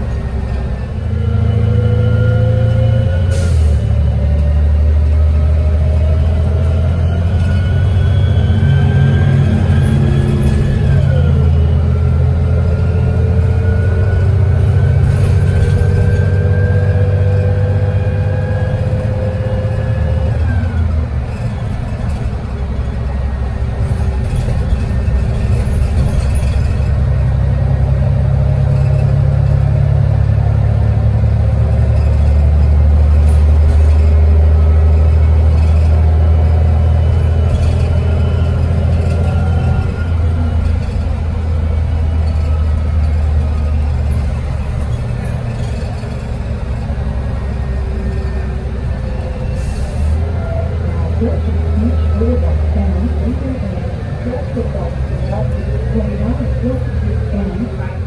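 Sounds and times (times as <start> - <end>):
bus engine rumbling: 0.0 - 58.0
drivetrain whine: 4.0 - 58.0.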